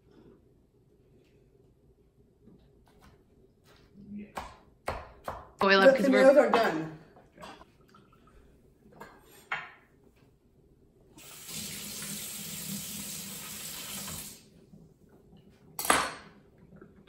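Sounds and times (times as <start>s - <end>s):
faucet running: 11.2s - 14.5s.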